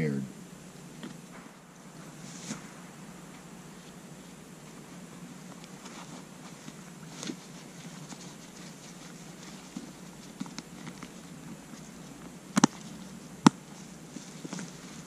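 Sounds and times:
gear pouches rustling: 4.7 - 15.0.

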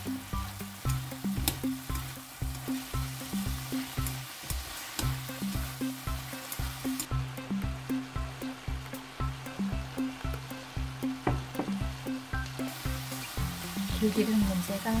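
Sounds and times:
cabbage sizzling in pan: 0.0 - 15.0
background music with bass beat: 5.1 - 14.0.

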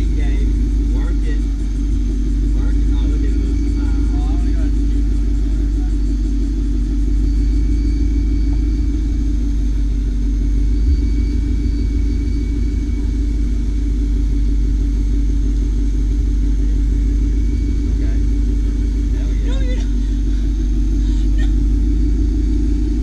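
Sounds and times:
car engine running: 0.0 - 23.0
short low thump: 10.8 - 13.5.

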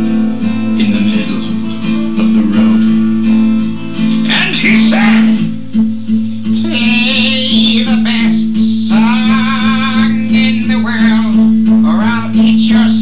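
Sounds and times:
acoustic guitar strumming: 0.0 - 13.0
man singing loudly: 6.6 - 13.0.

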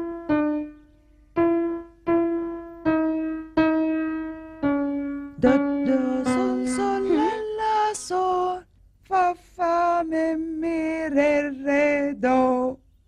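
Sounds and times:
piano note: 0.0 - 7.9
cartoon child singing: 5.4 - 12.8.

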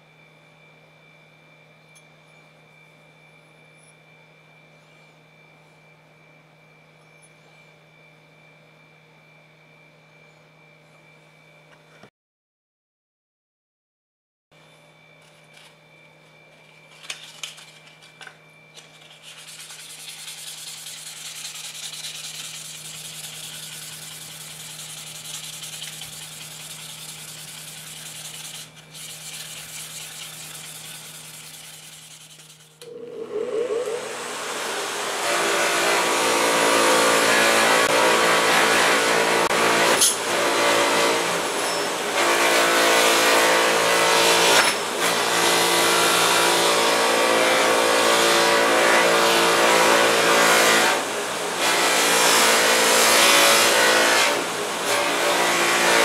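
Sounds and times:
bench grinder whining: 15.2 - 56.0
sandpaper rubbing on steel: 18.9 - 32.8.

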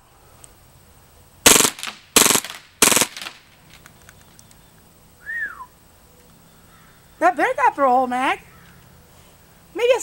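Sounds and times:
airsoft gun rattling bursts: 1.5 - 4.4
faint clicks: 3.7 - 4.6.

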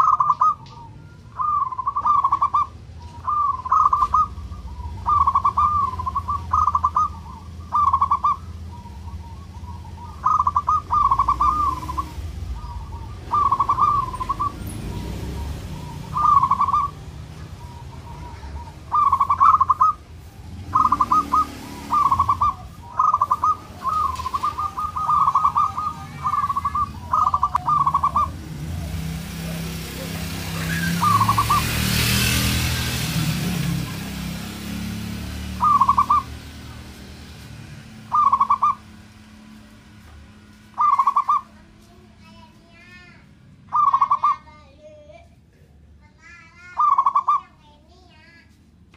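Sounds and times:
dove cooing: 0.0 - 32.6, 33.5 - 36.8, 38.0 - 39.3, 40.8 - 41.6, 43.7 - 44.5, 46.7 - 47.5
broad rushing noise: 8.6 - 40.8.

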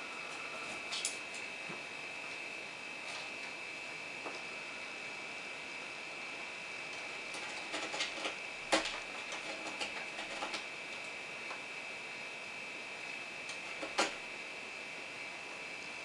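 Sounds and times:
high-pitched whine: 0.0 - 7.4
cat claws scratching and tapping: 7.3 - 10.7, 13.5 - 14.2.

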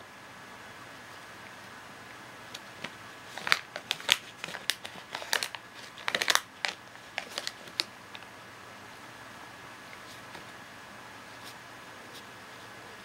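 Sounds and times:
foil pouch crinkling: 3.3 - 8.2
cat crunching dry treats: 3.3 - 8.3.

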